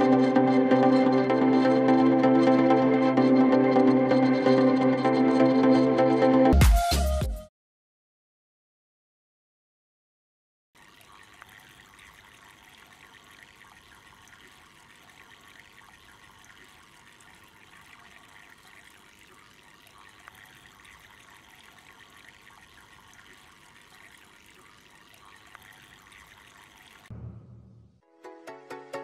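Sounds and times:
fountain water trickling: 10.8s - 27.1s.

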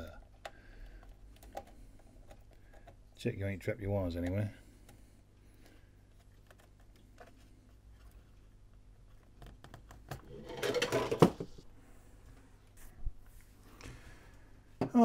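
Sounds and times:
wires and plastic parts clicking: 0.0s - 3.2s, 4.1s - 10.3s.

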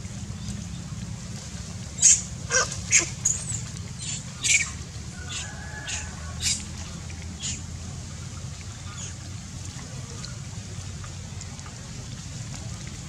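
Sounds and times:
macaques squeaking: 2.0s - 3.6s.

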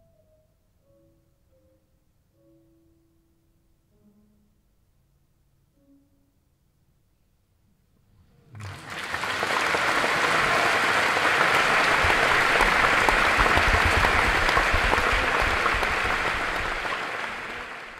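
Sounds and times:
audience applause: 8.5s - 17.9s.

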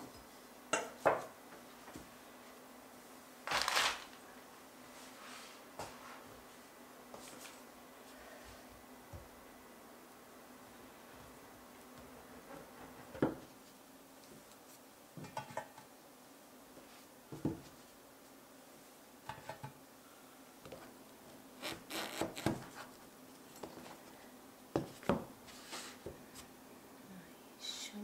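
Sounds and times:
faint steady hum: 0.0s - 28.0s
paper rustling against container: 3.5s - 4.2s.

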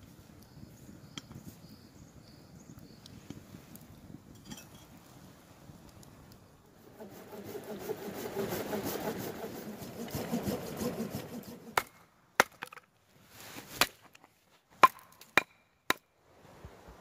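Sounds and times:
rough noise: 6.6s - 12.0s
hatchet chopping wood: 11.4s - 12.9s, 14.8s - 16.0s.

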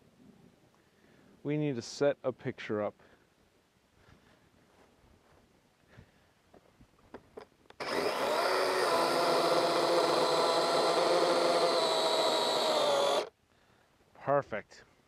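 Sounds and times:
electric chainsaw cutting log: 7.8s - 13.3s.

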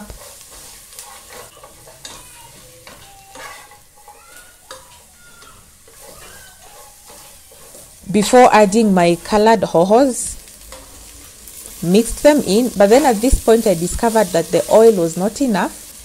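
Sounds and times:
spatula scraping a pan: 0.0s - 9.4s, 10.4s - 14.4s
carrots sizzling in oil: 0.0s - 16.0s
spatula squeaks on pan: 0.2s - 8.0s.

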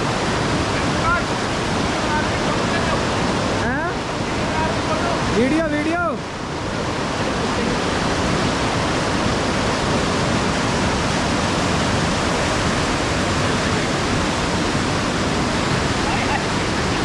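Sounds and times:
river rushing over boulders: 0.0s - 17.0s.

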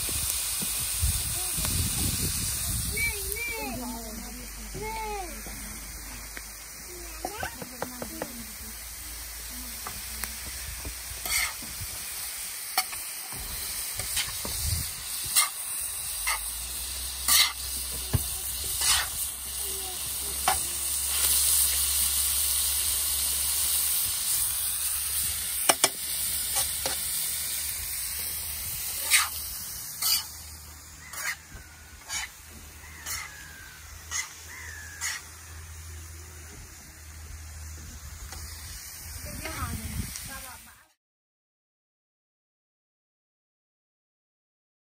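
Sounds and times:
meat and vegetables sizzling: 0.0s - 41.0s
metal spatula scraping a pan: 11.2s - 11.6s, 12.7s - 14.4s, 15.1s - 17.8s, 18.7s - 19.2s, 29.0s - 35.4s.

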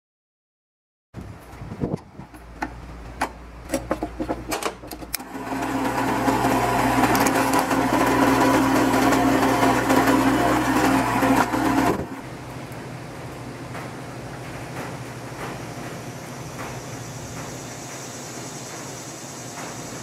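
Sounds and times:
drill press motor running: 5.1s - 12.3s.

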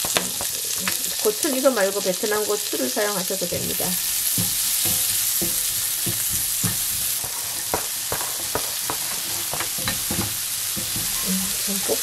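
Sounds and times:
vegetables sizzling in hot oil: 0.0s - 12.0s
spatula scraping a pan: 3.4s - 12.0s.

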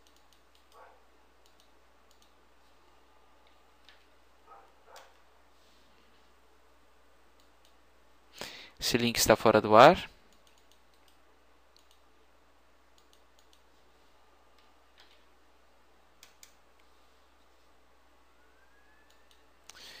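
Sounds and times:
computer mouse clicks: 0.0s - 0.8s, 1.4s - 2.4s, 7.4s - 7.8s, 10.3s - 12.0s, 12.9s - 13.7s, 16.2s - 16.9s, 19.1s - 19.8s.

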